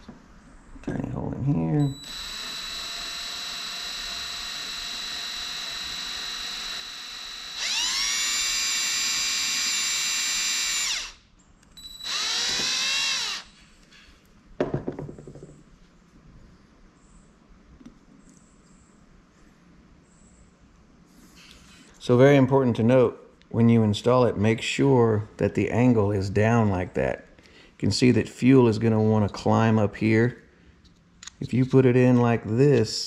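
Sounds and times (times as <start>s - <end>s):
cordless drill running: 1.9s - 13.6s.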